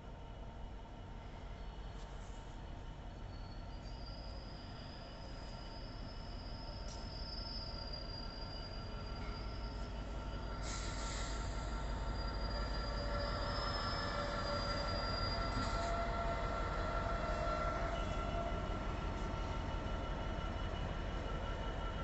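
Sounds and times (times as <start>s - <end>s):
locomotive engine rumble: 9.0s - 22.0s.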